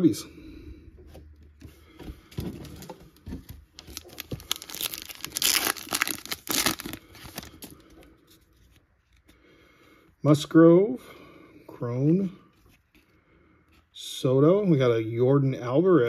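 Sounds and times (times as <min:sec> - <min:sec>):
foil pack tearing and crinkling: 0:03.8 - 0:07.8.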